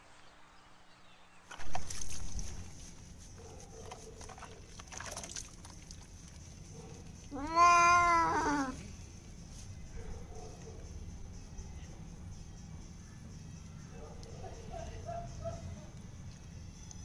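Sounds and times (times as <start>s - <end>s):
cat meowing: 7.3s - 8.9s.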